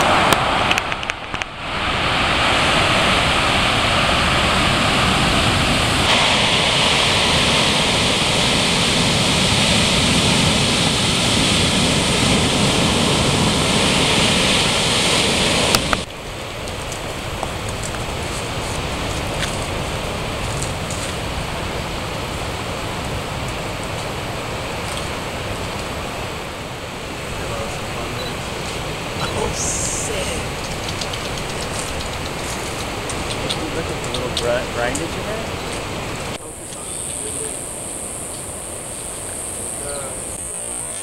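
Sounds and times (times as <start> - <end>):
ocean surf breaking: 0.0 - 41.0
faint ticks: 30.6 - 33.5.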